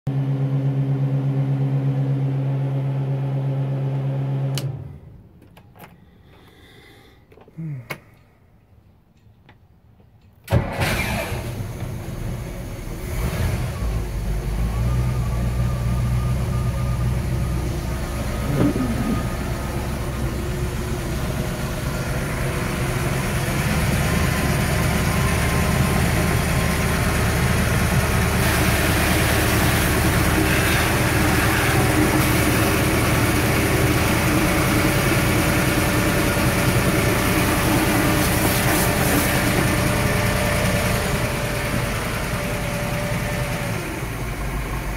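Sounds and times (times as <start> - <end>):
boat engine idling: 16.6 - 44.9
hose water splashing into bucket: 37.7 - 39.7.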